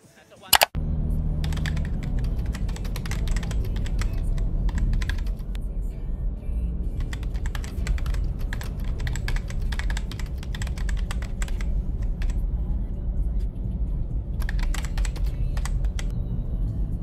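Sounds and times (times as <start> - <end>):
keyboard typing: 0.6 - 0.8, 1.4 - 5.5, 7.0 - 12.4, 14.4 - 16.1
low rumble: 0.8 - 17.0.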